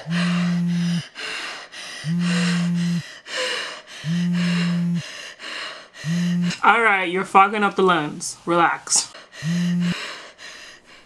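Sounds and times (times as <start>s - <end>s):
phone vibrating buzzes: 0.0s - 1.1s, 2.0s - 3.0s, 4.0s - 5.0s, 6.0s - 6.6s, 9.4s - 10.0s
heavy breathing: 0.0s - 6.7s, 9.0s - 11.0s.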